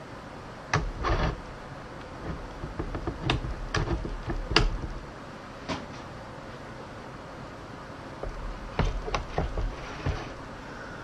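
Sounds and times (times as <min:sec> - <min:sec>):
sharp clicks and knocks: 0:00.7 - 0:01.4, 0:02.0 - 0:05.1, 0:08.2 - 0:10.4.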